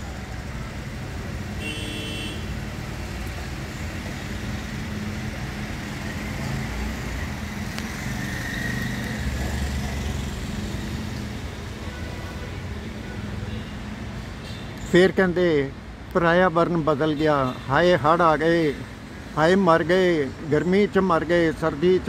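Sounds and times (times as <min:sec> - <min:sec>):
road traffic noise: 0:00.0 - 0:22.0
vehicle passing: 0:02.8 - 0:11.6.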